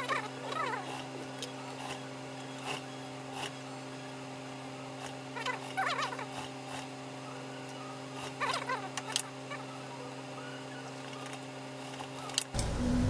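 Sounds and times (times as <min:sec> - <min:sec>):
high warbling whine: 0:12.6 - 0:13.0.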